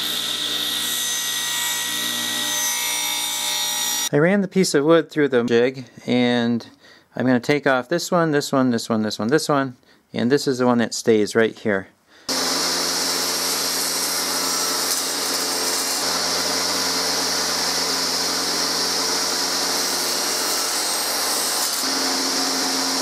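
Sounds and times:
table saw running: 0.0 - 4.1, 12.3 - 23.0.

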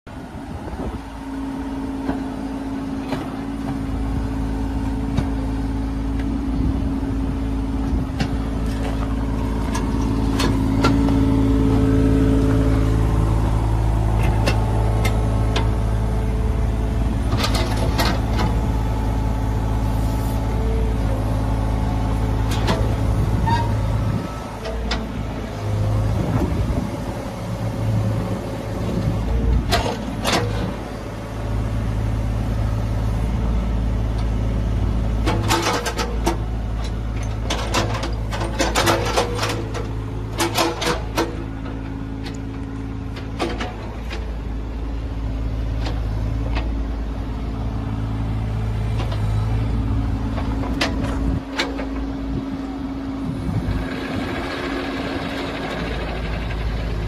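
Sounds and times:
excavator diesel engine running: 0.1 - 57.0
metal clanks and knocks: 35.2 - 42.4.

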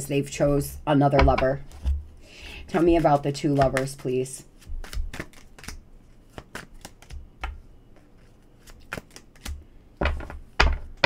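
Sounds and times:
dull thumps: 1.0 - 2.1
cards being shuffled: 2.7 - 9.6.

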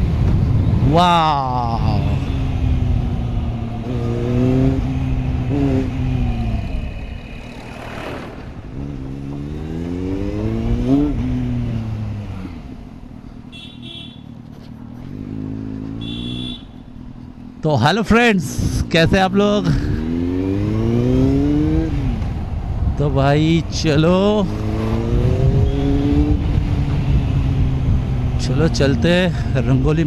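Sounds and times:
motorbike engine revving: 1.8 - 12.7, 19.6 - 22.5, 24.4 - 29.9.

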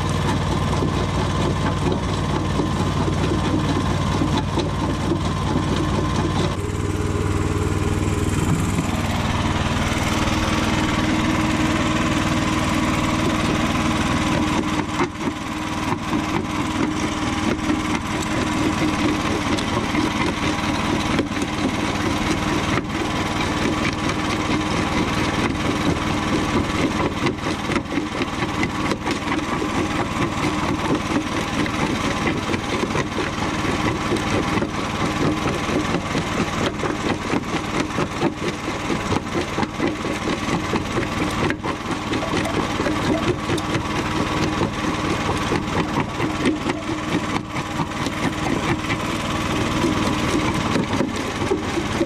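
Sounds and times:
crusher engine running: 0.0 - 52.0.

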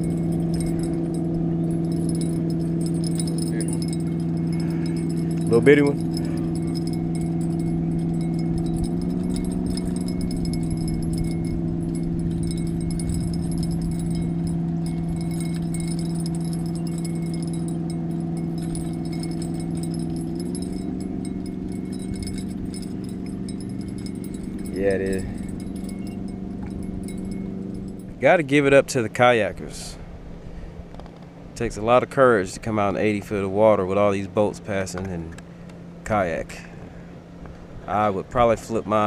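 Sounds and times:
boat motor humming: 0.0 - 29.3
faint ticking and jingling: 0.0 - 29.6.

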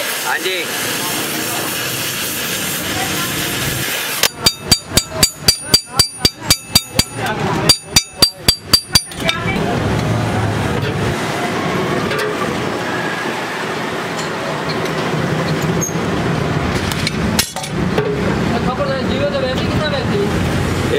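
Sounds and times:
steady hiss: 0.0 - 5.0
hammer striking steel: 4.2 - 9.5.

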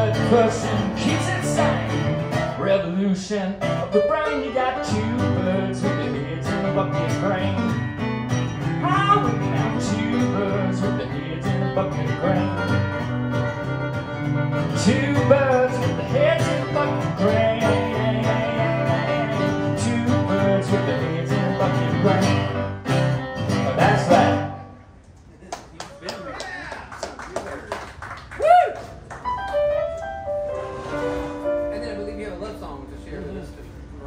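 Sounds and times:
man singing: 0.0 - 7.8, 8.6 - 13.0, 14.6 - 22.7, 23.6 - 24.6
acoustic guitar: 0.0 - 25.0, 29.2 - 32.0
electric keyboard: 12.1 - 24.6, 29.2 - 34.0.

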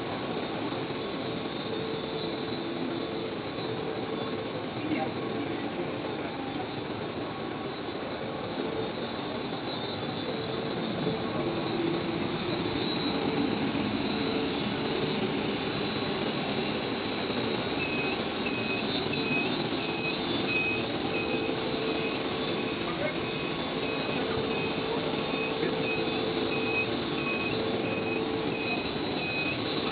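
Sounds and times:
production line machinery whining: 0.0 - 29.9
electronic beeper: 10.0 - 29.9.

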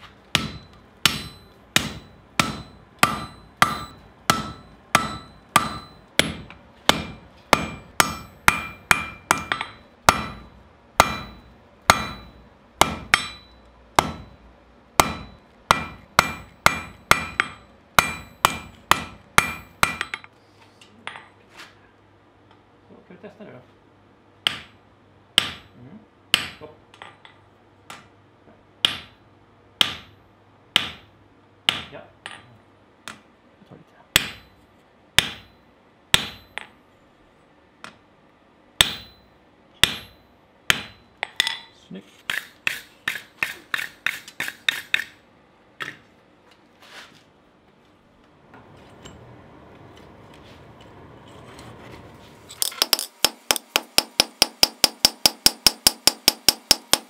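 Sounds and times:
sledgehammer striking hot steel: 0.0 - 20.3, 25.4 - 25.7, 29.8 - 30.2, 34.2 - 34.6, 35.2 - 36.8, 38.8 - 41.7, 42.3 - 45.2, 52.6 - 57.0.

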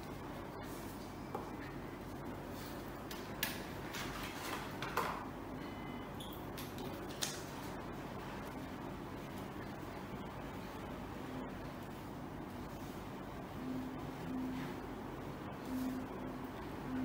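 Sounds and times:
low background hum: 0.0 - 17.0
paper rustling: 3.8 - 5.0.

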